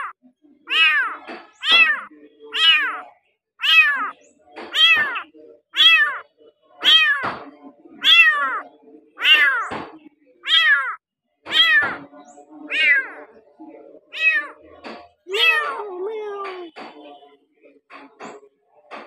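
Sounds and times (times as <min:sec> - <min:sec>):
kitten meowing: 0:00.7 - 0:03.0, 0:03.6 - 0:06.2, 0:06.8 - 0:07.3, 0:08.0 - 0:08.6, 0:09.2 - 0:09.8, 0:10.4 - 0:12.1, 0:12.7 - 0:13.1, 0:14.2 - 0:14.6, 0:15.3 - 0:16.7.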